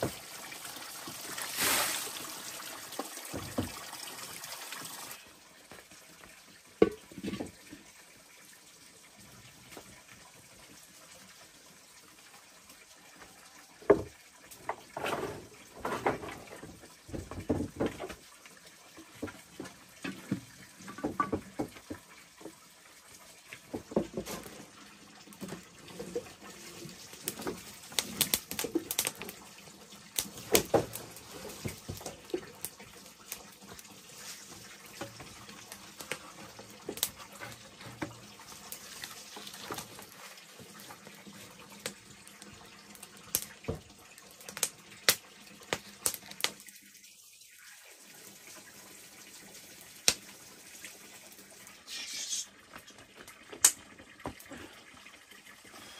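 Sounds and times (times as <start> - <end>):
clatter and rustling: 14.9 - 18.2
kindling snapping and crackling: 27.9 - 29.3.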